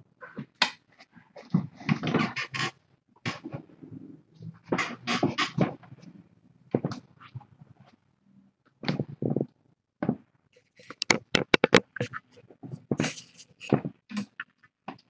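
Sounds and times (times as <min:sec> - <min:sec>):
sharp clicks and knocks: 0:10.9 - 0:12.2.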